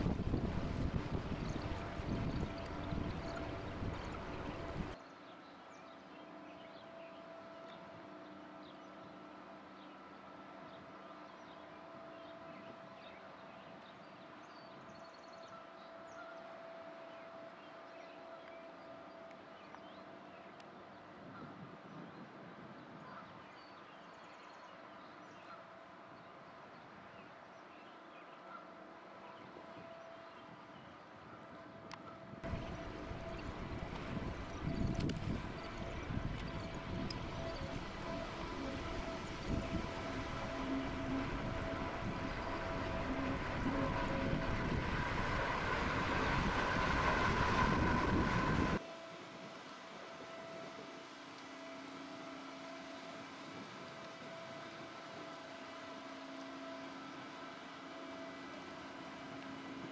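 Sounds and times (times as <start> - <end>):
wind on microphone: 0.0 - 5.0, 30.5 - 51.0
low hum: 0.0 - 20.6, 31.4 - 59.9
ship machinery drone: 0.0 - 59.9.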